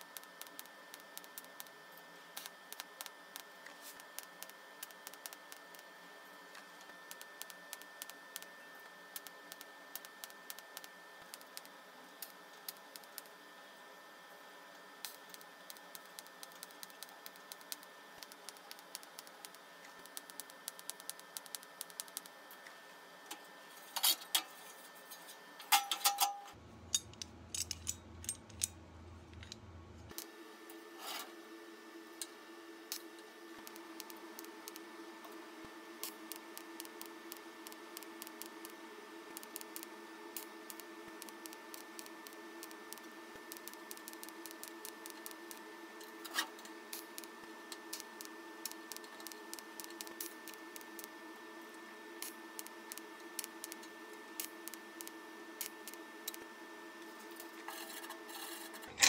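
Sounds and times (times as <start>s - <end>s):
welding crackling and whine: 0.0s - 59.0s
sharp metal clicks: 25.8s - 28.8s
low hum: 25.8s - 30.2s.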